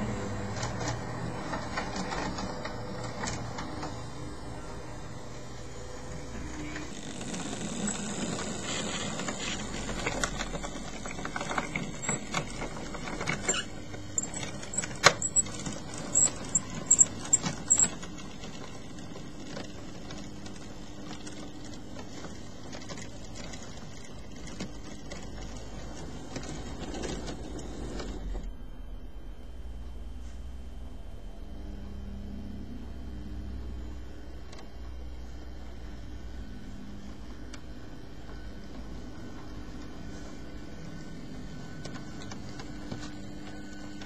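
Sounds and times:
model train wheels clattering: 6.7 - 18.7.

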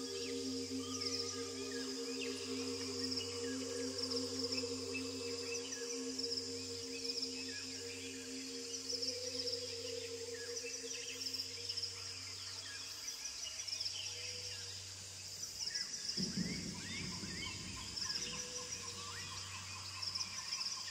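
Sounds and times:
soft low sustained tone: 0.0 - 12.1
insect drone: 0.0 - 20.9.

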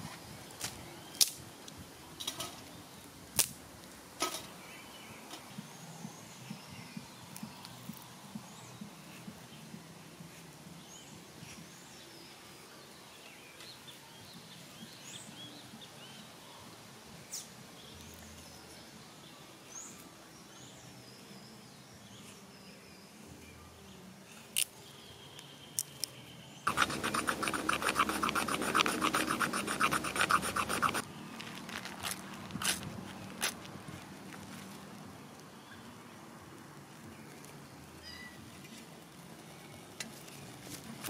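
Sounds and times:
birds chirping: 25.1 - 31.4
knife scraping wooden stick: 26.7 - 31.0.

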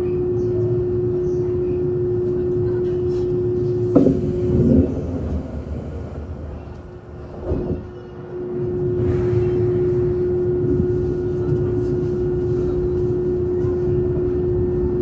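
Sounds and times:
electric train equipment hum: 3.6 - 8.5
sharp clunk: 3.9 - 7.7.

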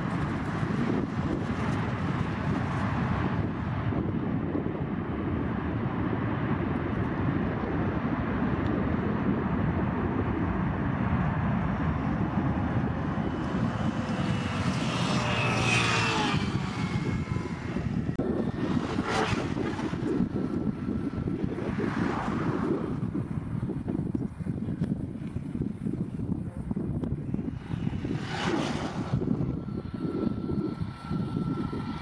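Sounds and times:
jet engines rumbling: 0.0 - 32.0
engines spooling down whine: 26.7 - 32.0.

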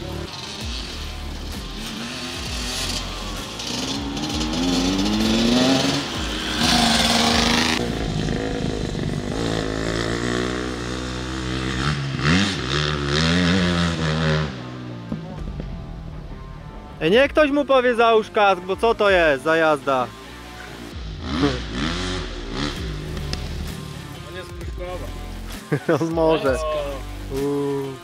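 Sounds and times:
dirt bike engine revving: 0.0 - 14.8, 20.2 - 24.2.

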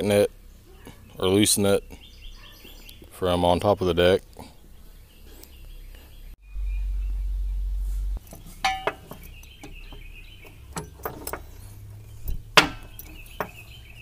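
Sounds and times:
birds chirping faintly: 0.0 - 14.0
low rumble: 6.3 - 8.3.

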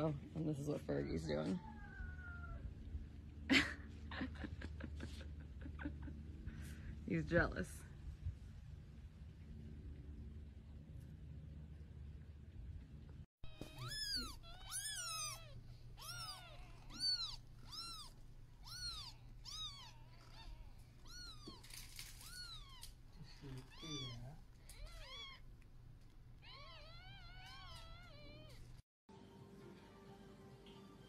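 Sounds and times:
kittens mewing: 13.5 - 25.6, 26.4 - 28.8.

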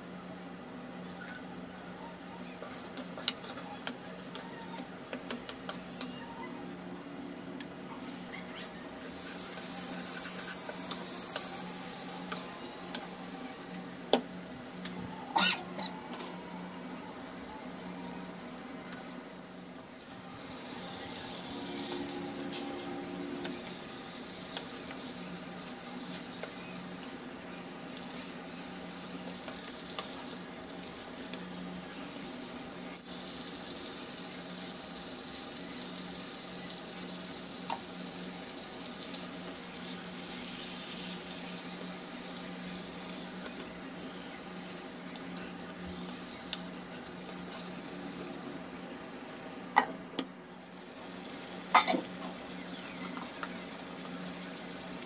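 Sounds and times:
chicken sizzling in a pan: 8.0 - 55.0
low hum: 9.8 - 29.4.

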